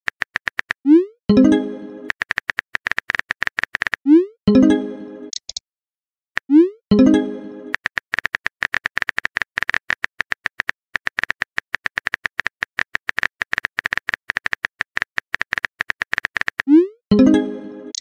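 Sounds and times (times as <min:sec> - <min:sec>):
synthetic key-tap clicks: 0:05.3 - 0:05.6.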